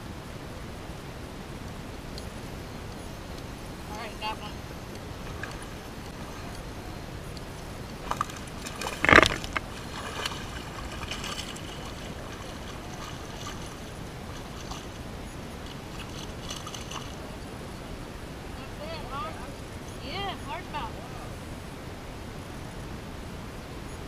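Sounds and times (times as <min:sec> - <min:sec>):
faint steady hiss: 0:00.0 - 0:24.0
water splashing in a pond: 0:04.6 - 0:17.4.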